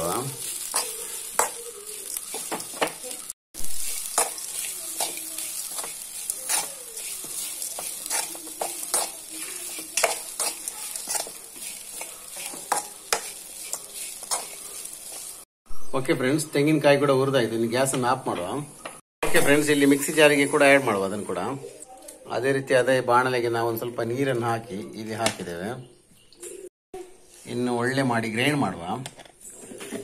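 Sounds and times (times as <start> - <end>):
spatula scraping a pan: 0.0 - 15.4
food sizzling: 0.0 - 21.9.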